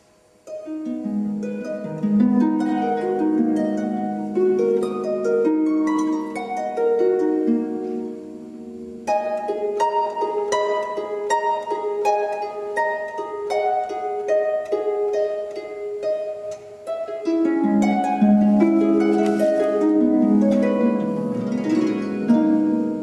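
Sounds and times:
plucked string music: 0.4s - 23.0s.

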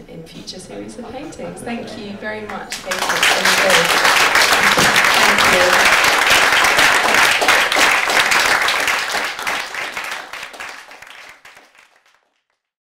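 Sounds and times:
audience applauding: 2.5s - 12.5s.

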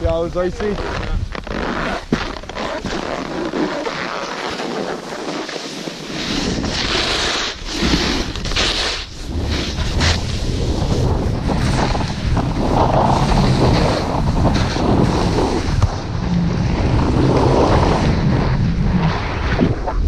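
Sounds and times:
snowboard scraping over snow: 0.0s - 20.0s
wind buffeting microphone: 6.0s - 20.0s.

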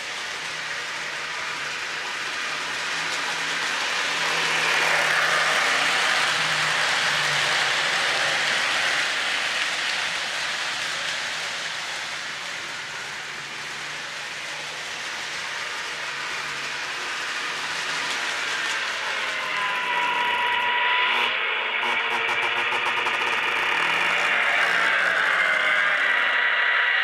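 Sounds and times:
model train wheels clattering: 0.0s - 21.1s.

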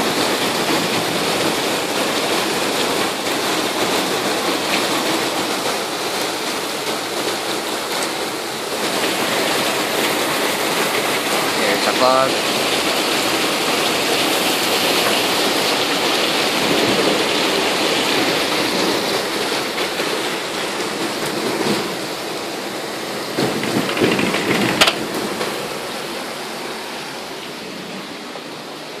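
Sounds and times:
heavy rain pouring: 0.0s - 29.0s.

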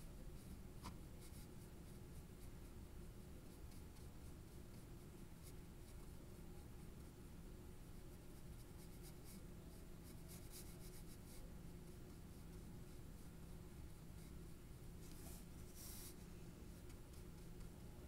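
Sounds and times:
low steady hum: 0.0s - 18.0s
pencil scratching on paper: 10.0s - 13.0s, 14.1s - 17.8s.

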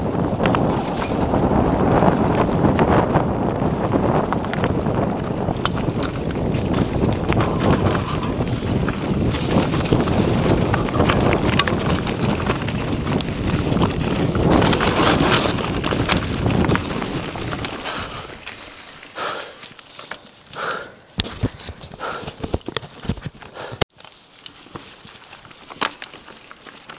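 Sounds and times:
wind buffeting microphone: 0.0s - 18.6s
bike rattling and knocking: 0.0s - 20.4s
bike tyres rumbling on dirt: 0.0s - 26.9s.

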